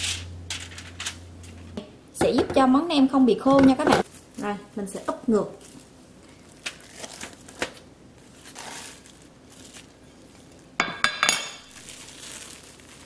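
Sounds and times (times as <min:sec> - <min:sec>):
plastic wrap rustling: 0:03.4 - 0:13.0
glass dish clinking on surfaces: 0:10.8 - 0:11.7.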